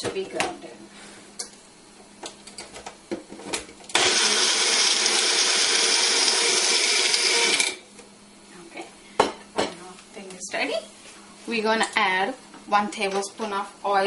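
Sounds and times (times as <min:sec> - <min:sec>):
blender motor grinding: 0:03.9 - 0:07.8.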